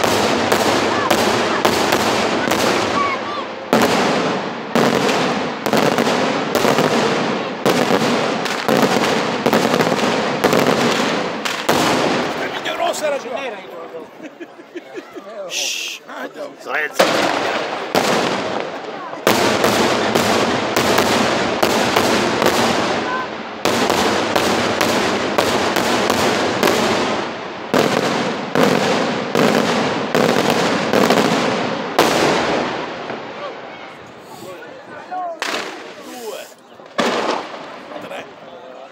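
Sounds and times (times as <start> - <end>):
firework crackling: 0.0 - 13.5, 16.7 - 34.7, 35.3 - 38.3
firework shells bursting: 3.7 - 12.5, 35.4 - 37.8.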